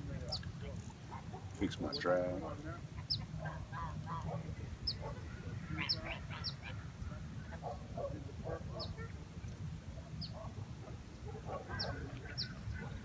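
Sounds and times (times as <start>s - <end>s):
waterfowl calling: 2.7s - 7.8s
small bird chirping: 3.0s - 5.1s.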